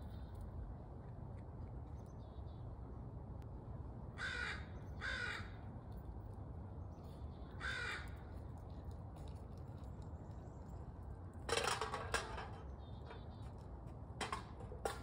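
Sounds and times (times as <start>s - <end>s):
crow cawing: 4.2s - 5.6s, 7.6s - 8.2s.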